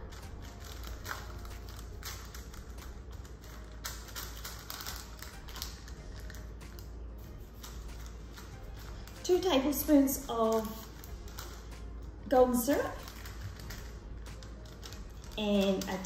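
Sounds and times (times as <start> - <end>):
baking paper rustling: 0.0 - 16.0
fingertips tapping: 10.2 - 16.0.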